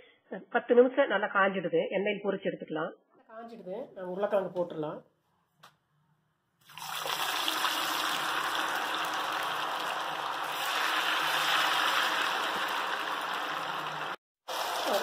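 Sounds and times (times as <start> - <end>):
hot oil sizzling: 6.7 - 15.0.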